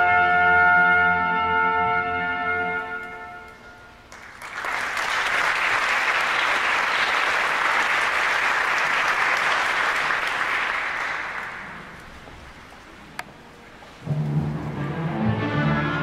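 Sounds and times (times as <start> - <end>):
audience applauding: 4.1 - 12.1.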